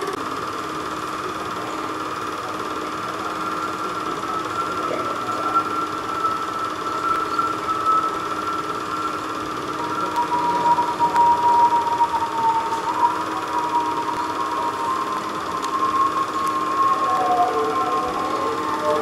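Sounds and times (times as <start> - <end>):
film projector whirring: 0.0 - 19.0.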